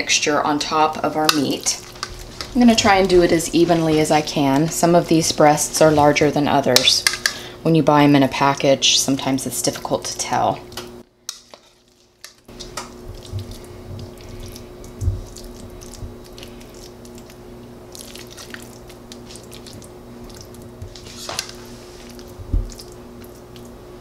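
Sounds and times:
faint steady hum: 0.0 - 24.0.

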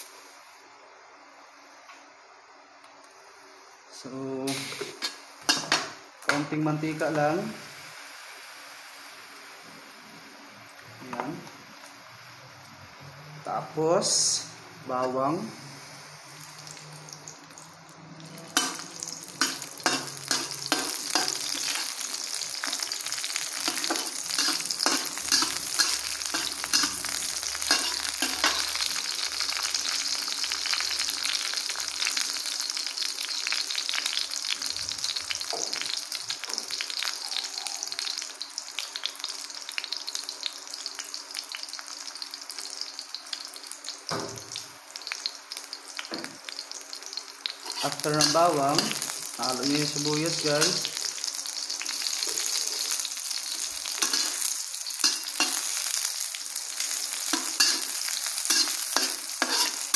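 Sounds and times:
garlic sizzling in hot oil: 3.6 - 59.9
metal spatula scraping pan: 23.7 - 28.7, 47.6 - 49.1, 54.0 - 55.6, 58.5 - 59.9.

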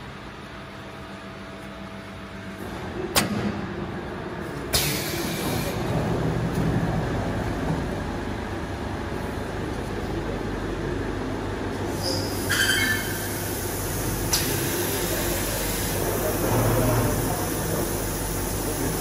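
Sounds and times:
steady machine hum: 0.0 - 19.0
pneumatic air hiss: 11.9 - 18.8.

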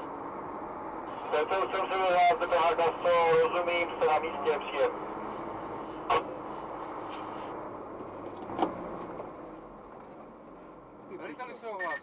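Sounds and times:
vehicle engine and road hum: 0.0 - 12.0.

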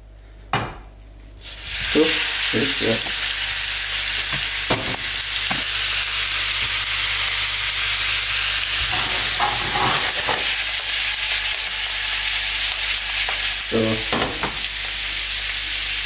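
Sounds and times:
meatballs sizzling in oil: 1.4 - 16.0
meatballs knocking against pan: 14.1 - 14.6.

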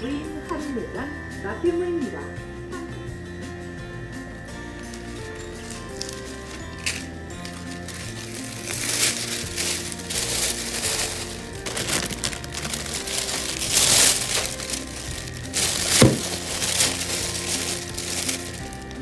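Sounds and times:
background music: 0.0 - 19.0
plastic bag rustling: 4.9 - 19.0.

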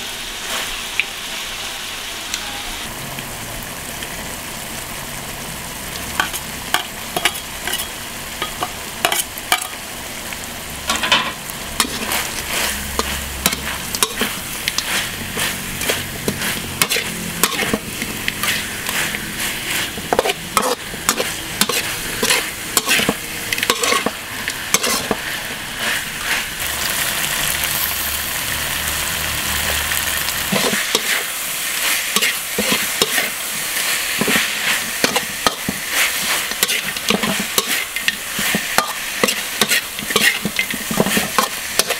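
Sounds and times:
meat sizzling in oil: 0.0 - 41.9
metal spatula scraping a wok: 6.2 - 9.8, 10.9 - 28.1, 29.5 - 41.9.

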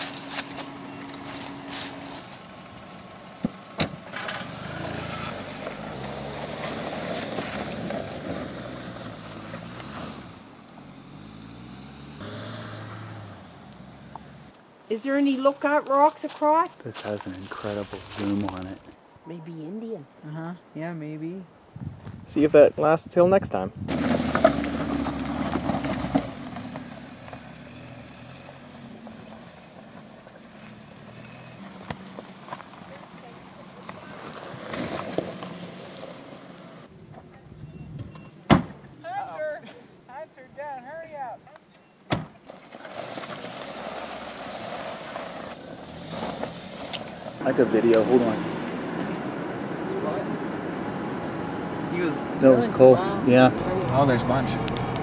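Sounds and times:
car engine revving: 0.0 - 14.6, 23.8 - 36.9, 42.9 - 55.0
car door shutting: 3.4 - 4.4, 37.9 - 38.9, 42.1 - 42.4
car engine running: 43.6 - 55.0.

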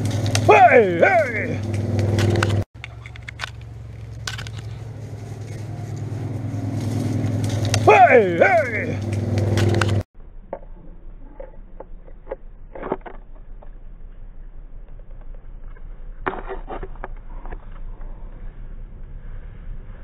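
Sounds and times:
dry leaves and twigs crackling: 0.0 - 10.0.

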